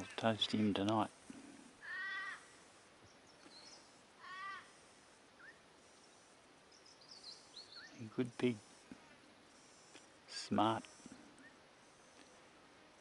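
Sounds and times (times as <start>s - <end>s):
drawn-out animal calls: 1.7s - 2.7s, 4.0s - 5.0s.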